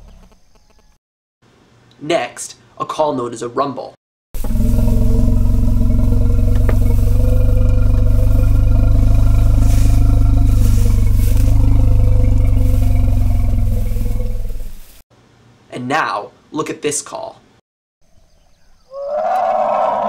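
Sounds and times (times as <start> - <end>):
elephant rumble: 4.4 - 15.0.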